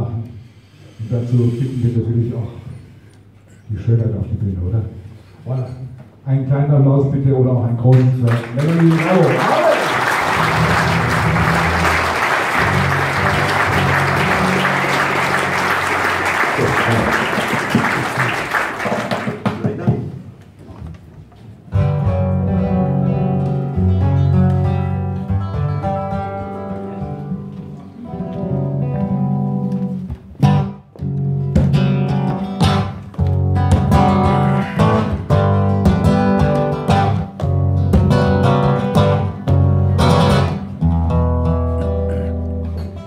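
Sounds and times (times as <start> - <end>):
hand claps: 7.9 - 19.8
acoustic guitars strumming: 10.3 - 18.0, 21.8 - 43.0.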